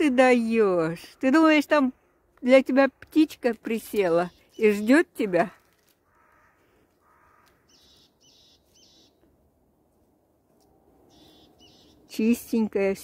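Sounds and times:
high bird calls: 4.1s - 5.1s, 6.0s - 9.2s, 11.1s - 12.1s
lower bird calls: 6.0s - 9.2s, 11.0s - 12.1s.

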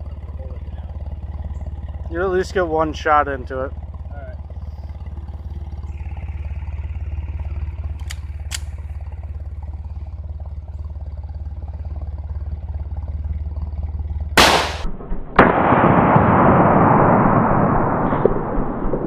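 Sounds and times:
steady low hum: 0.0s - 19.0s
faint clicks: 7.8s - 8.9s
handgun shots echoing: 8.0s - 8.8s, 14.4s - 16.2s.

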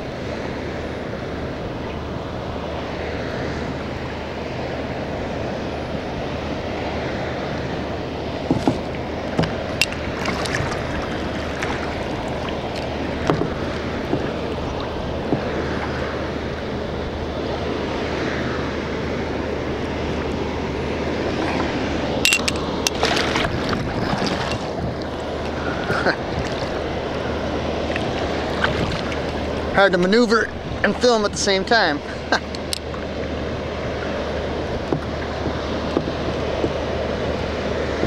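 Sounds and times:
ship engine drone: 0.0s - 38.0s
water wash: 0.0s - 38.0s
wind: 0.0s - 38.0s
knocks and splashes: 8.4s - 15.5s, 21.4s - 26.8s, 27.9s - 29.7s.

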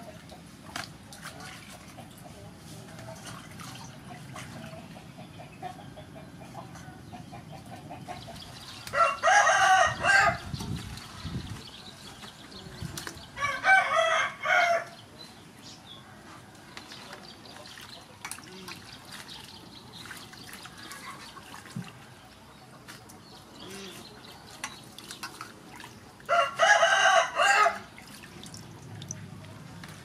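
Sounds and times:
water sloshing in steel bowl: 0.0s - 5.1s, 16.7s - 23.2s, 23.9s - 26.3s, 27.8s - 30.0s
rooster crowing: 8.9s - 10.4s, 13.4s - 14.9s, 26.3s - 27.9s.

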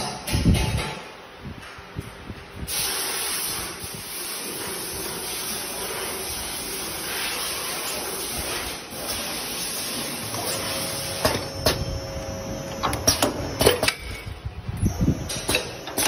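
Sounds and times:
machine hissing: 2.7s - 14.3s.

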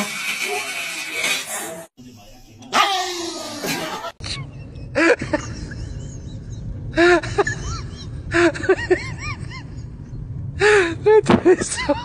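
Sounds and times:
steady low hum: 4.2s - 12.0s.

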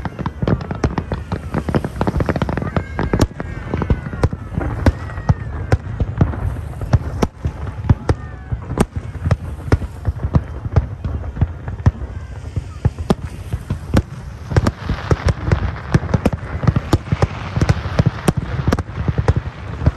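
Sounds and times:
firework crackling: 0.0s - 19.9s.

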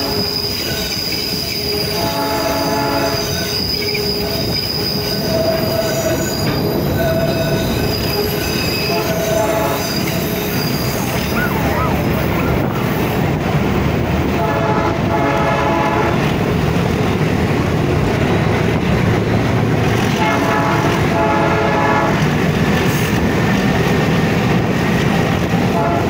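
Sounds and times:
locomotive horn blasts: 0.0s - 11.2s, 14.3s - 16.4s, 20.0s - 22.3s, 25.7s - 26.0s
train wheels and diesel rumble: 0.0s - 26.0s.

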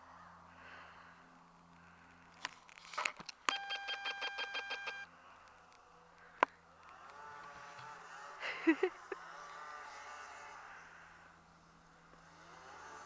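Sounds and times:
distant snowmobile engine buzz: 3.5s - 13.0s.

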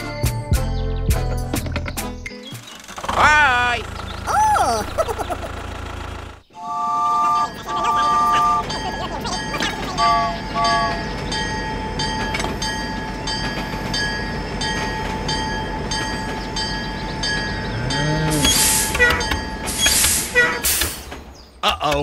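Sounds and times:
regular clicking of train on track: 5.0s - 22.0s.

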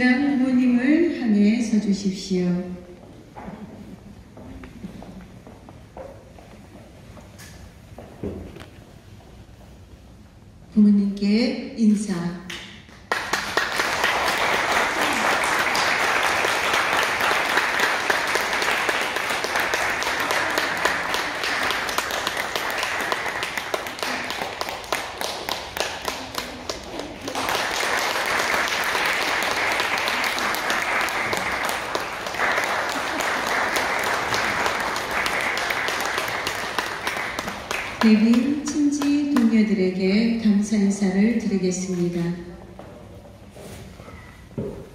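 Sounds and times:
crowd applauding: 13.1s - 39.4s.

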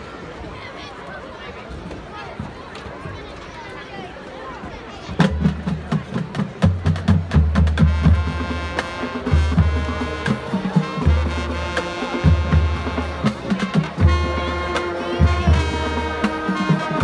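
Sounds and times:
marching band drums: 5.2s - 17.0s
brass chords: 7.4s - 17.0s
deep low brass notes: 7.7s - 17.0s.

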